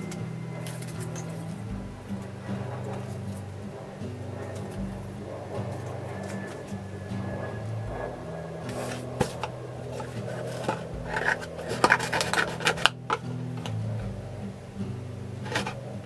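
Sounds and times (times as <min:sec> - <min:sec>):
cardboard boxes scraping: 0:08.7 - 0:13.0.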